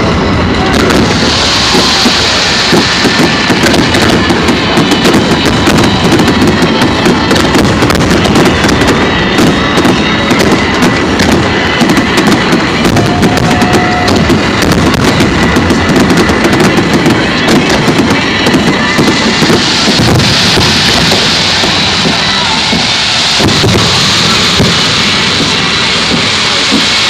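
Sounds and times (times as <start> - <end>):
fireworks bangs and crackling: 0.0 - 27.0.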